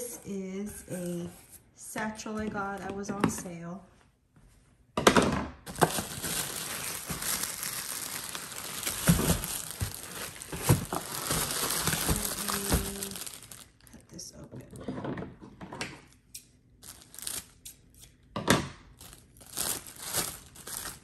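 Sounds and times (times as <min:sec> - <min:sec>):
plastic bag crinkling: 0:05.7 - 0:14.0, 0:16.8 - 0:17.6, 0:19.0 - 0:21.0.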